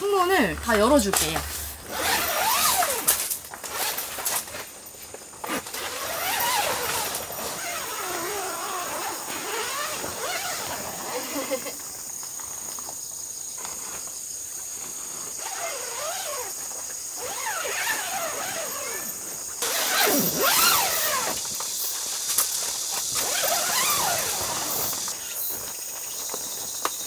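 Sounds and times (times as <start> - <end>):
zippers pulled open: 1.1 - 4.6, 5.4 - 11.5, 15.3 - 21.5, 22.9 - 25.2.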